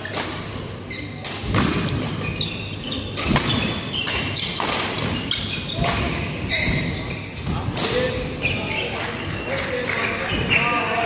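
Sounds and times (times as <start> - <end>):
shoes squeaking on court: 0.8 - 11.0
rackets striking shuttlecock: 1.2 - 8.2.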